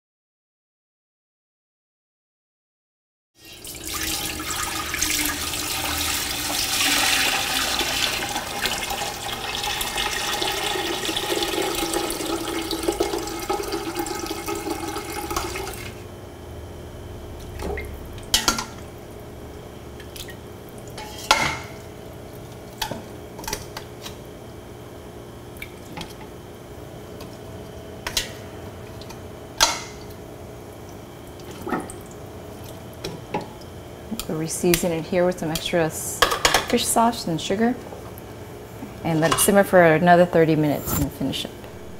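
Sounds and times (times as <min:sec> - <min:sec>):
liquid pouring into metal pot: 0:03.4 - 0:16.0.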